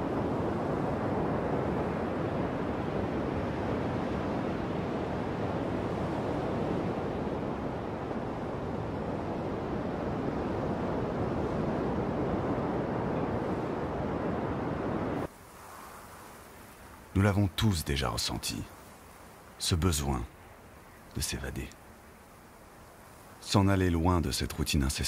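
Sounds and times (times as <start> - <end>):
ocean surf rushing: 0.0 - 25.0
wind: 0.0 - 25.0.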